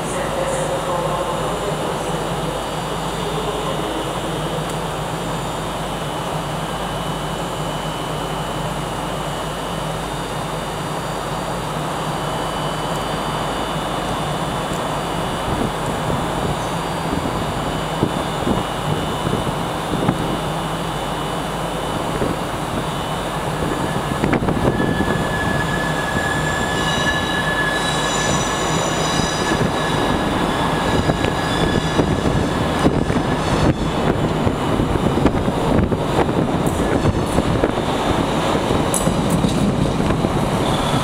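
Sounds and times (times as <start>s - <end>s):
train rumble and hum: 0.0s - 41.0s
thin high squeal: 23.7s - 32.5s.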